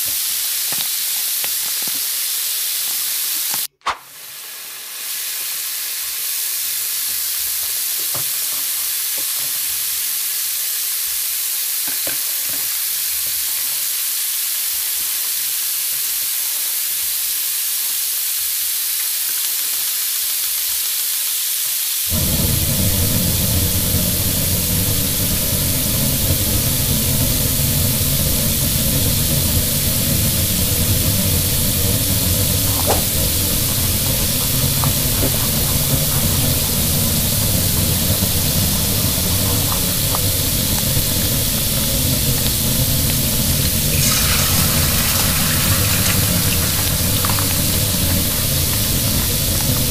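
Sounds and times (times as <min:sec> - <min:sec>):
sizzling hiss: 0:00.0 - 0:49.9
low rumble: 0:22.1 - 0:49.9.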